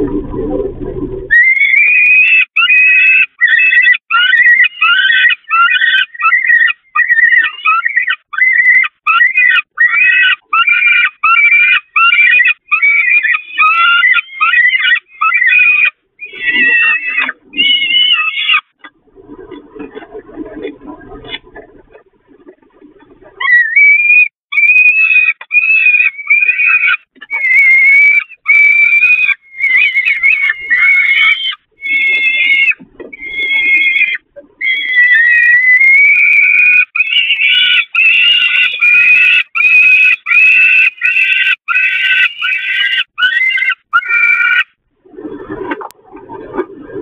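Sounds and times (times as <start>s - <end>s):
falcon chicks begging calls: 23.4s - 44.6s.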